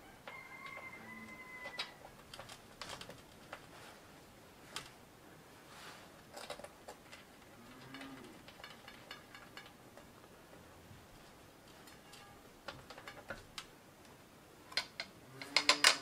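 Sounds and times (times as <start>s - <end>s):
small metallic clicks: 11.7s - 16.0s.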